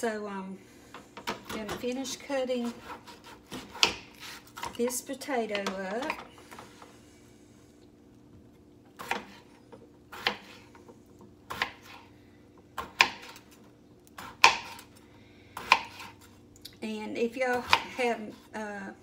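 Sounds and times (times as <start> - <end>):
knife cutting potato on board: 1.2 - 6.2, 9.0 - 9.5, 10.1 - 10.7, 11.5 - 12.1, 12.8 - 13.5, 14.2 - 14.9, 15.6 - 16.3, 17.5 - 18.2.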